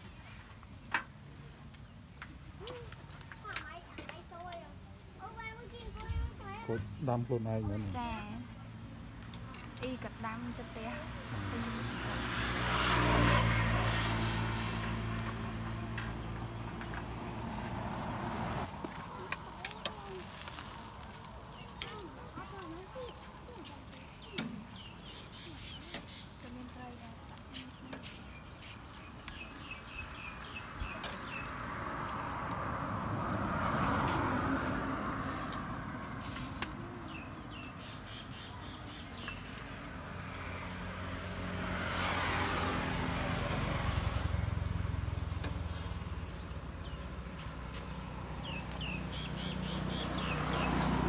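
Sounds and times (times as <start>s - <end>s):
road traffic passing: 0.0s - 51.0s
small birds chirping: 18.7s - 32.9s, 33.5s - 51.0s.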